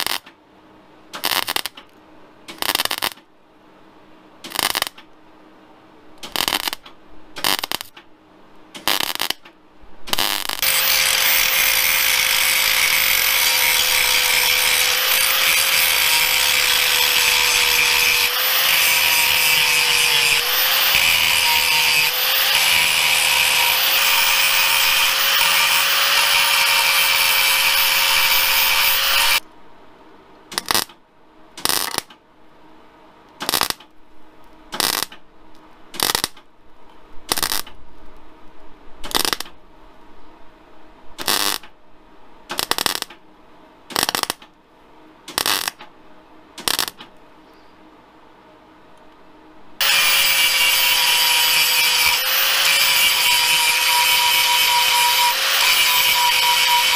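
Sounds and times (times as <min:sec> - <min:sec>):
welder tack welding bursts: 0:01.2 - 0:01.8, 0:02.5 - 0:03.2, 0:04.5 - 0:05.0, 0:06.2 - 0:06.8, 0:07.4 - 0:07.9, 0:08.8 - 0:09.4, 0:10.1 - 0:29.4, 0:30.5 - 0:30.9, 0:31.6 - 0:32.1, 0:33.4 - 0:33.8, 0:34.8 - 0:35.2, 0:36.0 - 0:36.4, 0:37.3 - 0:37.7, 0:42.6 - 0:43.1, 0:43.9 - 0:44.4, 0:45.3 - 0:45.8, 0:46.6 - 0:47.0, 0:49.8 - 0:56.9
angle grinder whining on steel: 0:10.6 - 0:29.4, 0:49.8 - 0:56.9.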